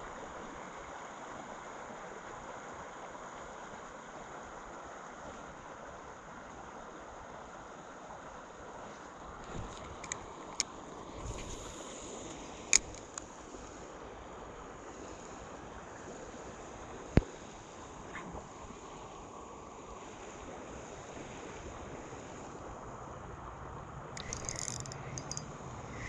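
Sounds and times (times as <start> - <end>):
water noise: 0.0 - 26.0
wind: 0.0 - 26.0
sharp clicks: 12.8 - 13.2, 24.2 - 25.4.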